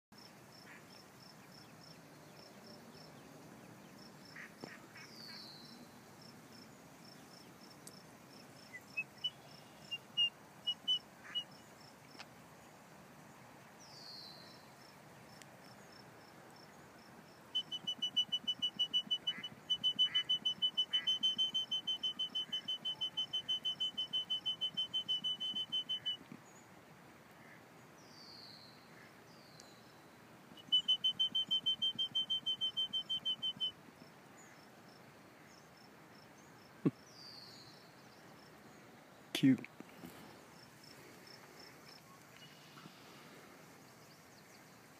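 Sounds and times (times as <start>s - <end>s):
insects chirping: 0.2s - 26.6s, 29.6s - 39.2s, 39.8s - 44.9s
falling bird whistles: 17.6s - 26.3s, 30.6s - 33.7s.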